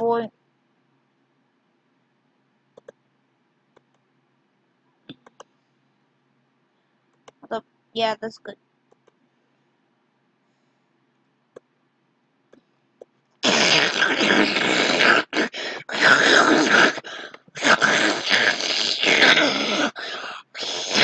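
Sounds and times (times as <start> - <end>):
mouse clicks: 2.8 - 3.0, 8.9 - 9.2.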